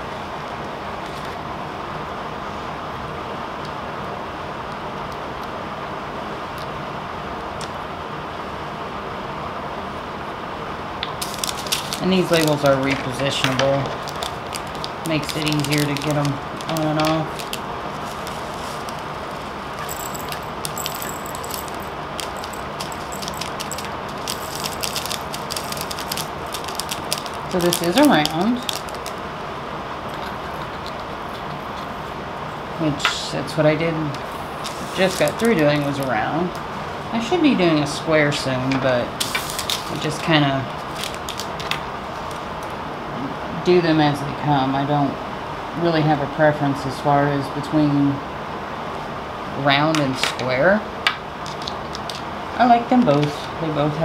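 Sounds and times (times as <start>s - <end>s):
plastic bags and jars clicking: 11.1s - 19.0s, 19.8s - 29.2s.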